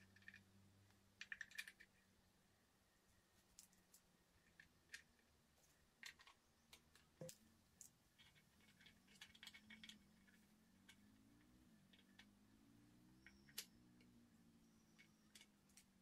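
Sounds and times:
low steady hum: 0.0s - 16.0s
metal parts tapping on plastic: 6.0s - 11.1s.

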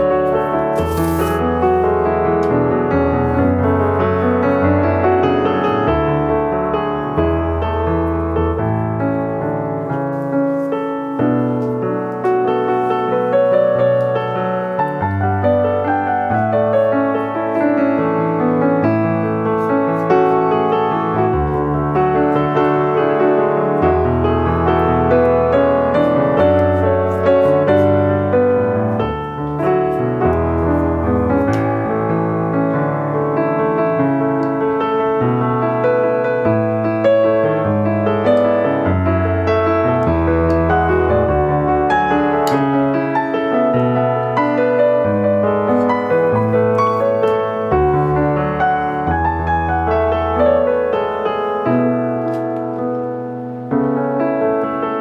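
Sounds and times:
piano music: 0.0s - 55.0s.

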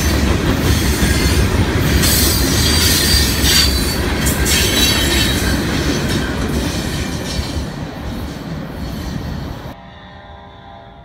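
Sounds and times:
train wheels rumbling on rail: 0.0s - 9.8s.

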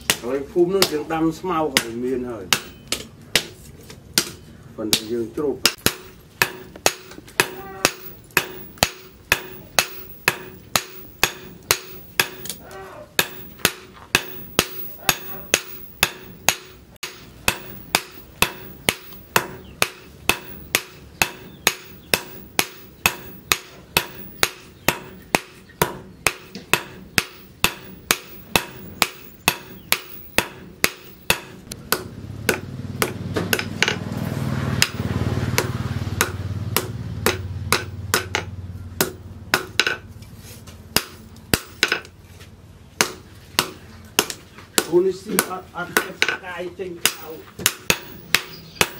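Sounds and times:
hammer striking hot metal: 1.7s - 3.6s, 5.0s - 34.1s, 34.8s - 40.0s, 47.0s - 48.9s.

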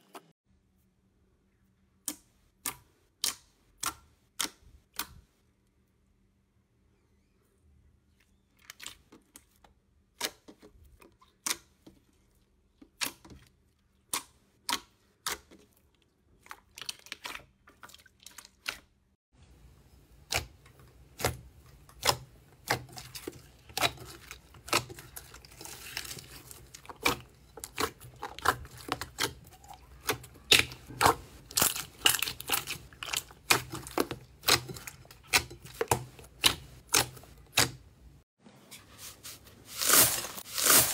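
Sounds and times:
slime squelching in glass bowl: 8.1s - 19.0s, 19.8s - 38.0s.

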